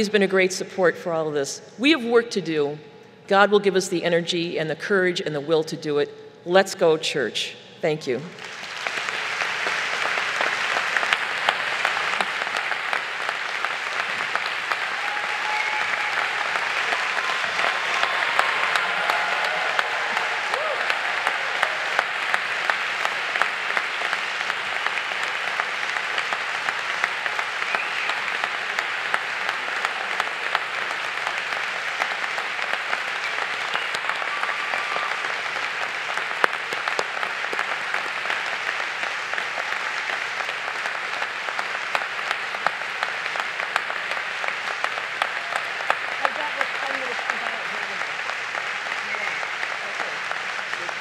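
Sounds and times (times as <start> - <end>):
audience applause: 8.3 - 51.0
people cheering: 8.4 - 51.0.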